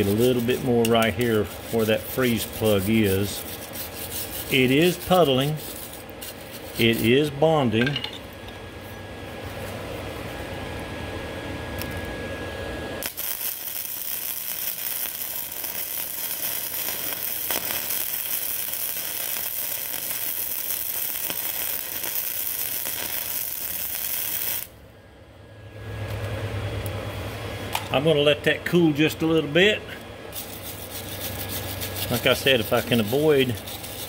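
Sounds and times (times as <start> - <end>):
welder arc crackling: 0.0 - 7.5, 13.0 - 24.8, 30.3 - 34.0.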